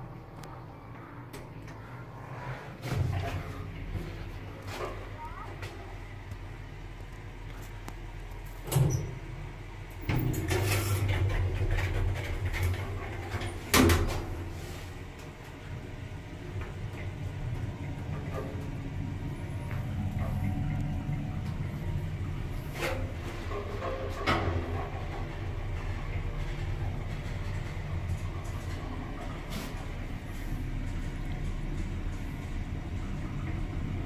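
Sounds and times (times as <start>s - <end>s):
lift doors sliding rumble: 8.6s - 34.0s
lift car humming: 10.1s - 34.0s.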